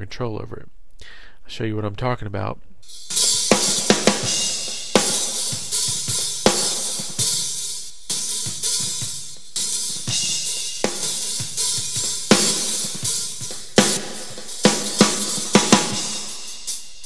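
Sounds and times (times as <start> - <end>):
hi-hat bleed: 2.8 - 17.0
snare drum hits: 11.8 - 16.3.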